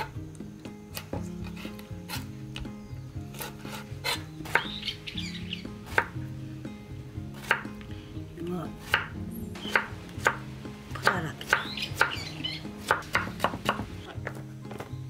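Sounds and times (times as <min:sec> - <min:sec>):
knife chopping on wooden board: 0:03.3 - 0:04.8, 0:05.8 - 0:06.2, 0:07.4 - 0:07.8, 0:08.8 - 0:10.4, 0:11.0 - 0:14.9.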